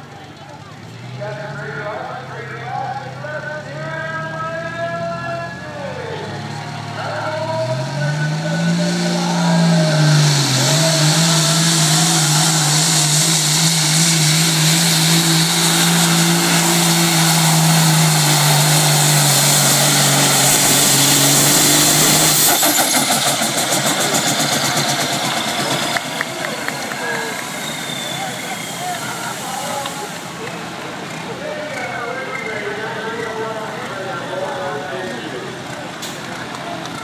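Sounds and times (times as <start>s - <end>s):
truck diesel engine at full power: 0.0s - 37.0s
dense rushing noise: 8.4s - 31.6s.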